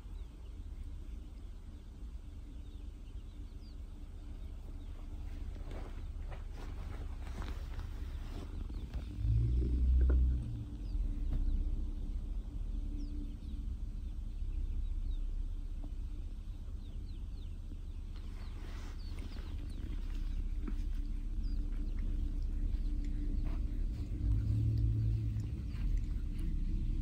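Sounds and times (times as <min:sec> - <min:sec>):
soft rustle: 0:03.8 - 0:12.1, 0:17.5 - 0:27.0
cat purring: 0:18.1 - 0:27.0.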